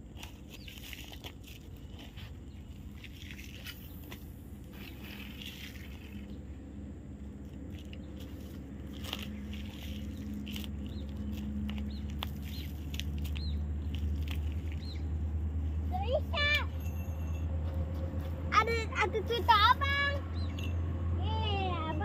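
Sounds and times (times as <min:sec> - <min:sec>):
fishing reel crunching and rustling: 0:00.0 - 0:06.6, 0:07.4 - 0:15.0.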